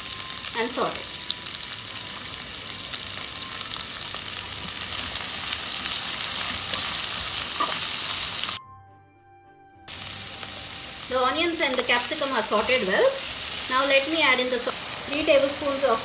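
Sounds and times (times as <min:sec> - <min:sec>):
vegetables sizzling in oil: 0:00.0 - 0:08.6, 0:09.9 - 0:16.0
metal spatula stirring: 0:05.9 - 0:08.1.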